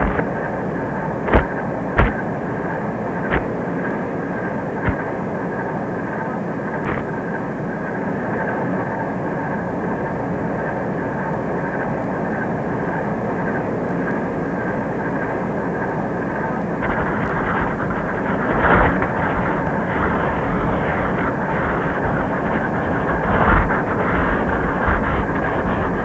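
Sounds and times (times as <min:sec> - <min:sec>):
pen scratching on paper: 0:00.0 - 0:00.3, 0:16.8 - 0:26.0
steady mechanical drone: 0:00.0 - 0:26.0.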